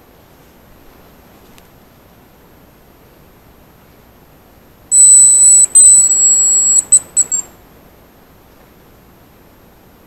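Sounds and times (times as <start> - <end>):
high thin whistle lure: 4.9 - 7.5.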